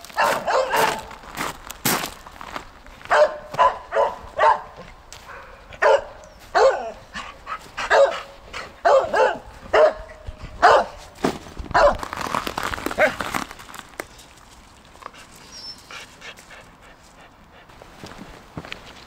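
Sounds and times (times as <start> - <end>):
dogs barking: 0.1 - 1.2, 3.1 - 11.0, 11.7 - 12.0.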